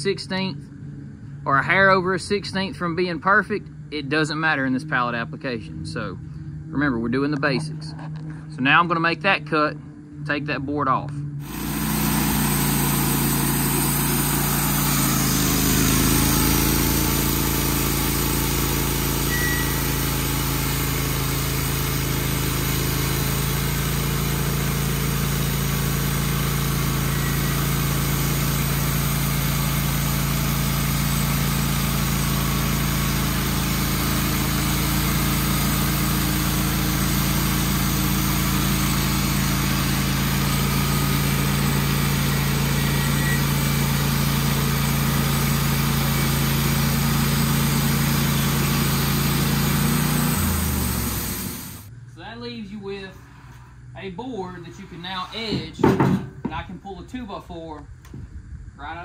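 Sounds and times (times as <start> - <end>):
band saw cutting log: 11.4 - 51.9, 53.2 - 56.6
gas engine running: 11.4 - 52.5.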